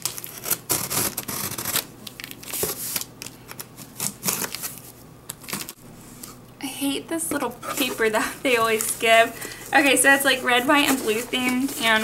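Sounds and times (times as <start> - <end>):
paper packing rustling: 0.0 - 6.4, 7.4 - 12.0.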